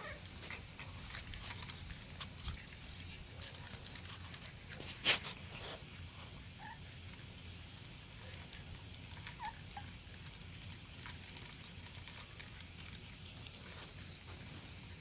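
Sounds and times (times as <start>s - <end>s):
puppies scrambling against fence: 8.0s - 15.0s
faint puppy squeaks: 9.2s - 9.9s.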